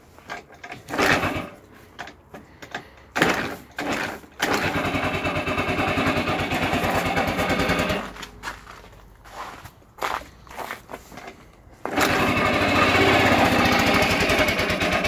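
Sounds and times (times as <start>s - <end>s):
scooter kick-start strokes: 0.2s - 9.5s, 10.6s - 15.0s
scooter engine fast idle: 3.2s - 8.1s, 11.9s - 15.0s.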